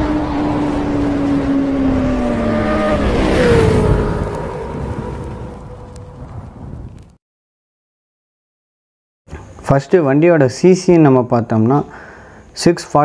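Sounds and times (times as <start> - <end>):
high-revving racing engine passing: 0.0 - 6.2.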